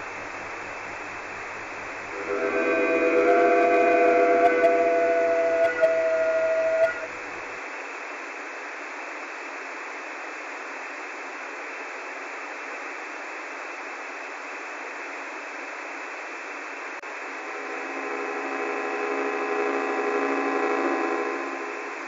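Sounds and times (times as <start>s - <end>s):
static hiss: 0.0s - 22.0s
synthesized held chord: 2.1s - 7.6s, 17.1s - 22.0s.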